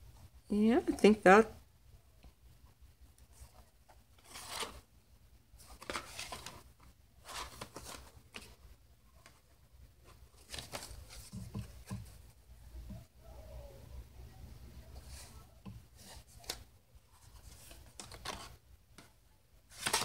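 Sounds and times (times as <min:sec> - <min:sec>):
paper pages rustling: 0:03.2 - 0:04.9, 0:05.6 - 0:12.3, 0:14.9 - 0:19.1, 0:19.7 - 0:20.0.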